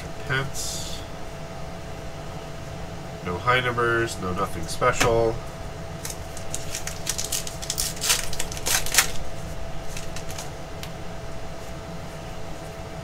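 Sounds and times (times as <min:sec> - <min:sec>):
steady hum: 0:00.0 - 0:13.0
trading cards rustling: 0:06.0 - 0:10.6.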